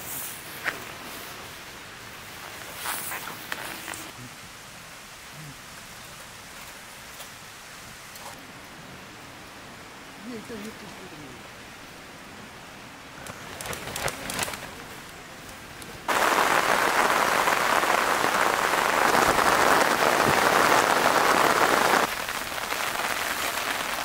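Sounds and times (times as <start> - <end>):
tent fabric rustling: 0.0 - 4.2, 13.2 - 24.0
heavy rain falling: 0.0 - 24.0.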